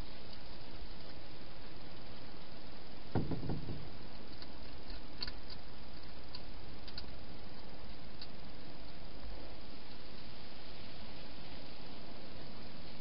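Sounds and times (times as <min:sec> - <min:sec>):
steady hiss: 0:00.0 - 0:13.0
dull knocks on food bowls: 0:03.2 - 0:03.8.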